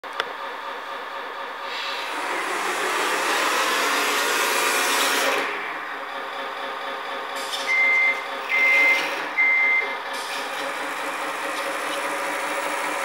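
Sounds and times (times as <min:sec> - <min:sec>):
truck engine sound idling: 0:00.0 - 0:13.0
reversing beeps: 0:07.6 - 0:10.0.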